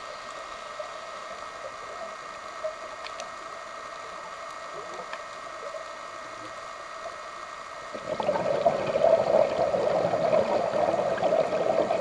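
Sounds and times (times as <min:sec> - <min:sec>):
underwater hum with hiss: 0:00.0 - 0:12.0
faint clicks: 0:00.1 - 0:07.8.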